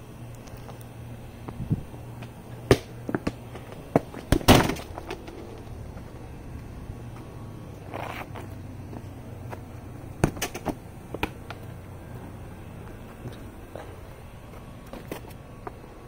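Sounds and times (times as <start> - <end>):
ball thudding on concrete: 1.4 - 5.7, 9.5 - 11.6.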